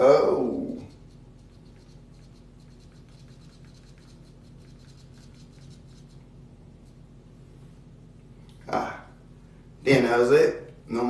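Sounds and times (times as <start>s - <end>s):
low steady hum: 0.0s - 11.0s
fingertips tapping phone screen: 0.8s - 7.0s.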